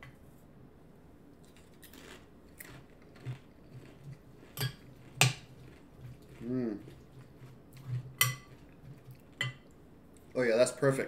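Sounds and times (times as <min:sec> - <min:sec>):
chip crunching being chewed: 0:01.4 - 0:09.4.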